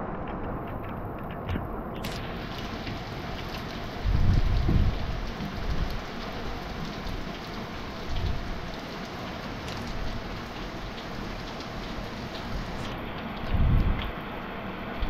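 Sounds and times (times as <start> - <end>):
low rumble: 0.0 - 2.0
steady rain falling: 0.0 - 15.0.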